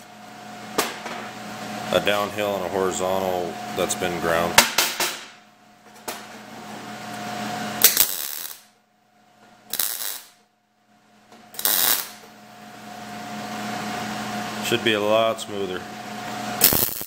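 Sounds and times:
steady machine hum: 0.0s - 17.0s
welding bursts: 7.8s - 8.7s, 9.7s - 10.4s, 11.6s - 12.2s, 16.6s - 17.0s.

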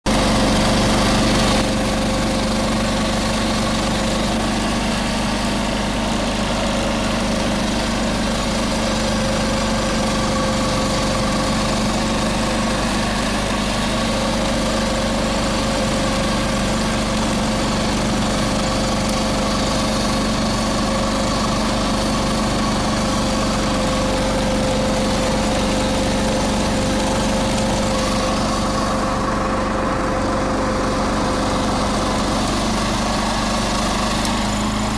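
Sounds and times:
garden tractor engine running: 0.0s - 34.9s.

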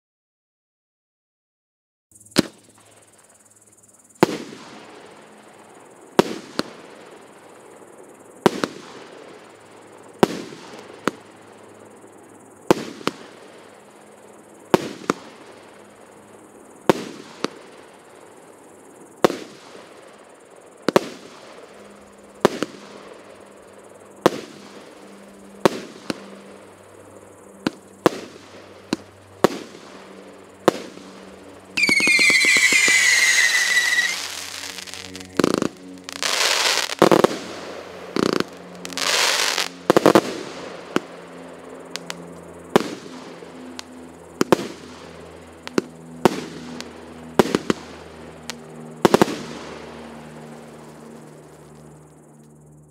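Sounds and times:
firework whistle: 31.7s - 37.4s
firework bangs: 31.8s - 41.0s.

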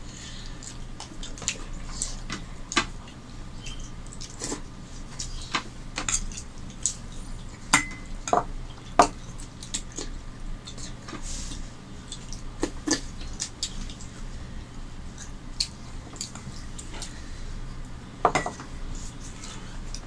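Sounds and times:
lip smacks and chewing: 8.7s - 14.3s, 15.1s - 17.2s.

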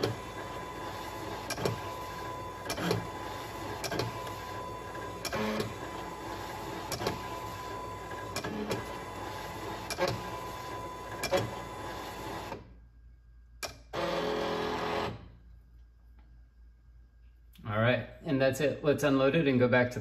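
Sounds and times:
cutting machine motors running: 0.0s - 12.6s.

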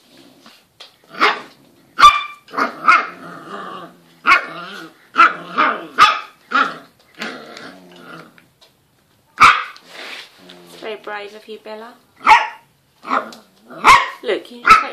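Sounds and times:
puppy barking: 1.1s - 3.2s, 4.2s - 6.9s, 9.4s - 9.8s, 12.2s - 14.9s.

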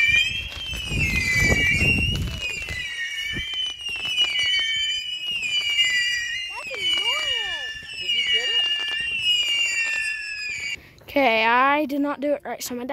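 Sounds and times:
crackling pops: 0.0s - 5.9s
firework whistling: 0.0s - 10.8s.

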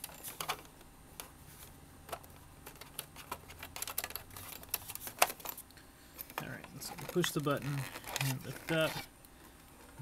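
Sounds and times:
cable tapping plastic casing: 2.1s - 5.6s, 6.3s - 8.8s.

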